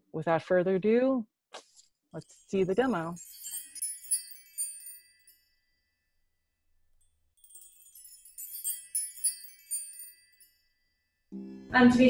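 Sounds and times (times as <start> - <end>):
high tinkling chimes: 2.2 - 6.4, 7.0 - 12.0.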